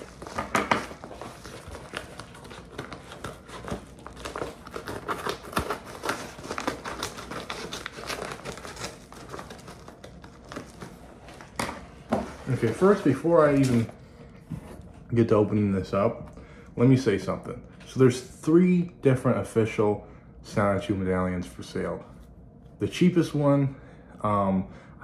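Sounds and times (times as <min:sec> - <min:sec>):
packaging crinkling: 0:00.0 - 0:13.9.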